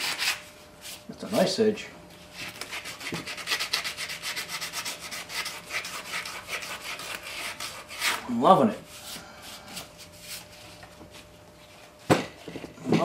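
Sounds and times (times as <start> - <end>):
sandpaper rubbing on metal: 2.5 - 8.2.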